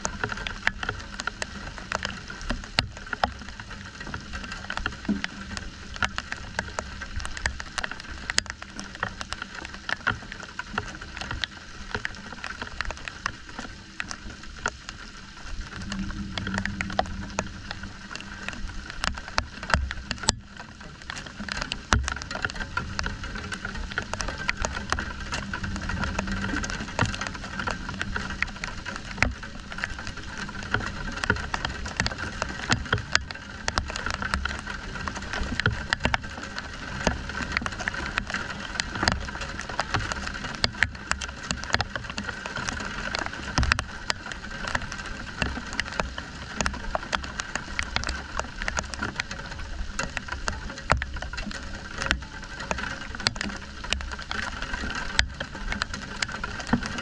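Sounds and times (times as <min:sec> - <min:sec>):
rain falling: 0:00.0 - 0:57.0
raindrops ticking close by: 0:00.0 - 0:57.0.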